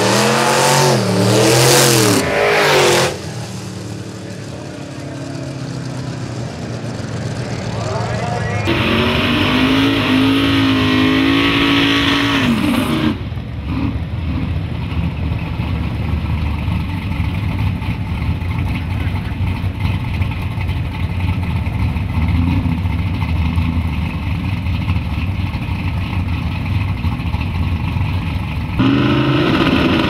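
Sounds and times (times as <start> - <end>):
drag-race engine at high revs: 0.0 - 14.5, 28.8 - 30.0
pickup engine low rumble: 0.0 - 30.0.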